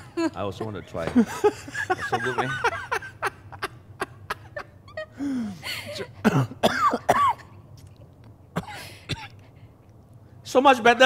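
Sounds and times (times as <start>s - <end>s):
man coughing: 5.8s - 7.6s, 8.6s - 9.4s
man clearing throat: 6.0s - 7.5s.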